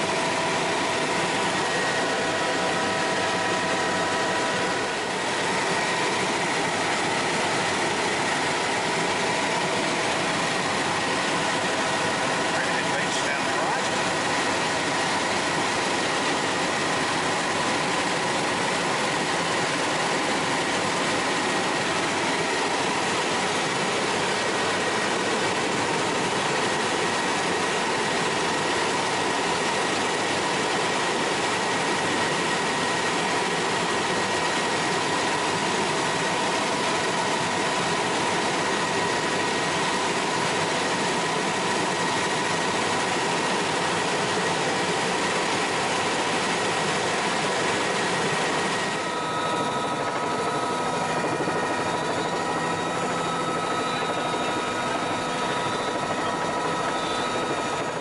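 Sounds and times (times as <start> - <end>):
helicopter cabin noise: 0.0 - 58.0
high-pitched turbine whine: 0.0 - 58.0.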